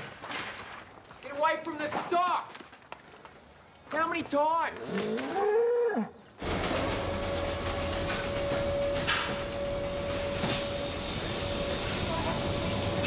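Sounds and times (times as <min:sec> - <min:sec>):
knocks and clanks: 0:06.4 - 0:12.1
machinery humming and whining: 0:06.4 - 0:13.0.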